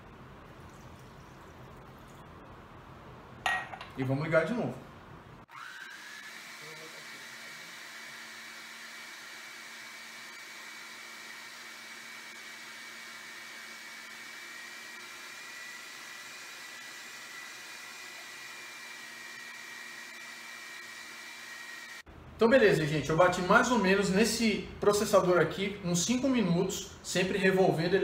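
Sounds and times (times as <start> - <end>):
food processor motor whirring: 5.5 - 22.1.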